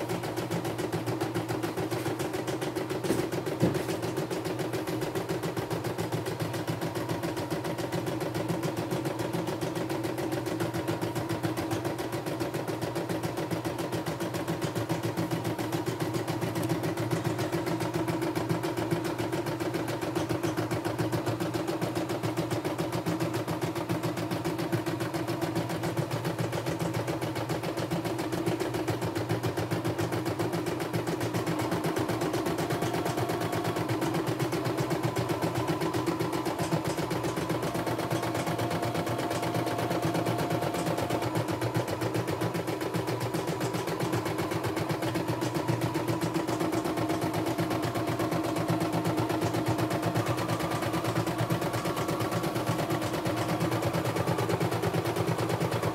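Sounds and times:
embroidery machine stitching: 0:00.0 - 0:55.9
sharp machine clicks: 0:25.6 - 0:55.9.

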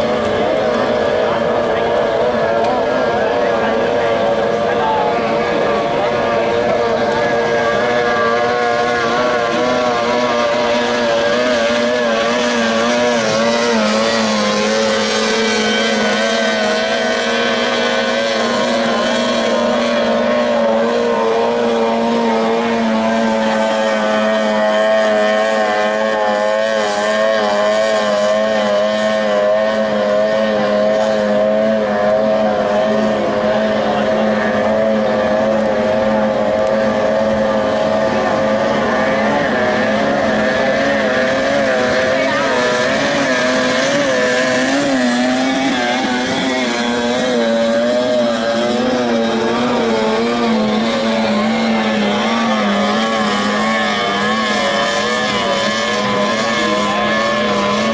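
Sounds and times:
racing boat engines whining: 0:00.0 - 0:57.9.

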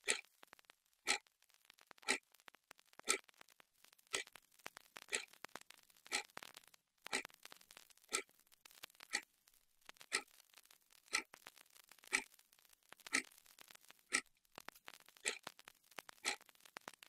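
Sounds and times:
wall clock ticking: 0:00.0 - 0:00.3, 0:01.0 - 0:01.3, 0:02.0 - 0:02.3, 0:03.0 - 0:03.3, 0:04.1 - 0:08.3, 0:09.0 - 0:09.3, 0:10.0 - 0:10.3, 0:11.1 - 0:12.4, 0:13.0 - 0:13.4, 0:14.1 - 0:14.3, 0:15.2 - 0:17.0
faint crackles: 0:00.0 - 0:17.0.

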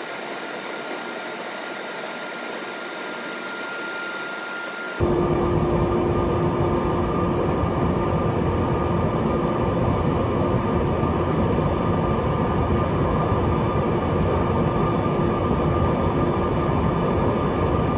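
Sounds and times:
turboprop engine drone: 0:04.5 - 0:17.9.

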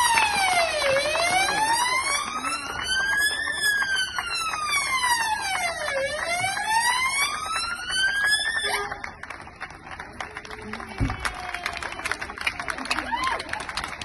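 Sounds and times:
police car siren wailing: 0:00.0 - 0:09.1.

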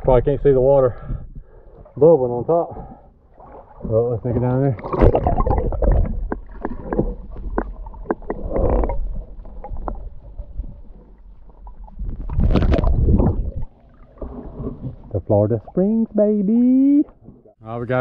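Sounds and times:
underwater clicks and knocks: 0:04.3 - 0:10.4
underwater water flow rumble: 0:04.7 - 0:15.8.

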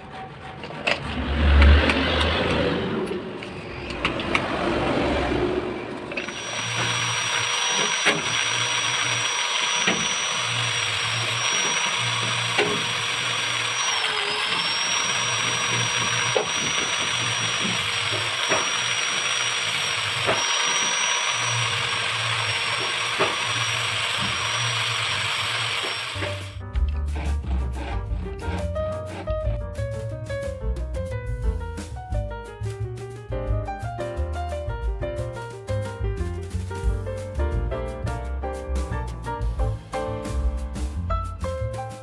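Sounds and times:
power tool motor whining: 0:06.1 - 0:26.6
background music: 0:26.5 - 0:42.0.

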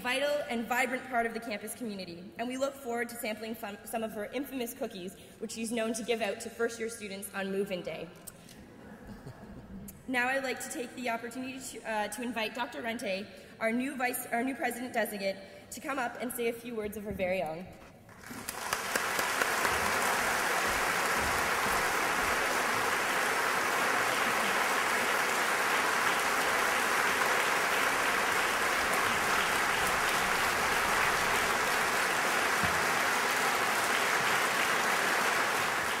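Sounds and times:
audience applauding: 0:18.1 - 0:36.0.

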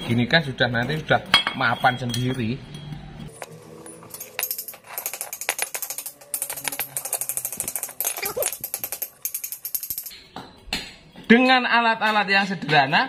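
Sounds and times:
sharp metallic clicks and clinks: 0:01.2 - 0:10.4.

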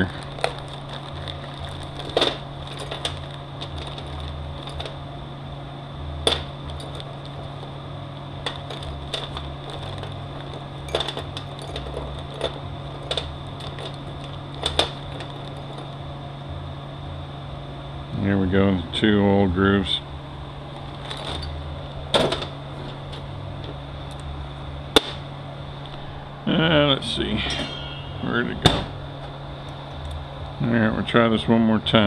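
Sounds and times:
metal tools clinking: 0:00.0 - 0:05.0, 0:06.3 - 0:07.8, 0:08.4 - 0:16.0, 0:20.8 - 0:21.6, 0:27.0 - 0:30.2
steady background hum: 0:00.0 - 0:32.0.

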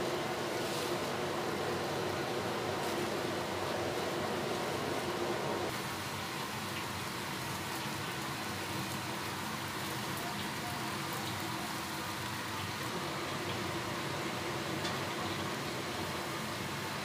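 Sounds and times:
tap water pouring into wok: 0:05.7 - 0:11.4.

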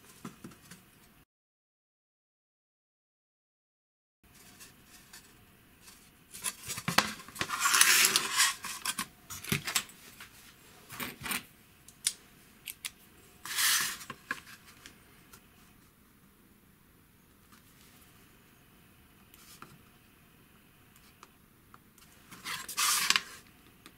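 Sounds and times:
plywood sheet sliding on mat: 0:13.4 - 0:14.1.

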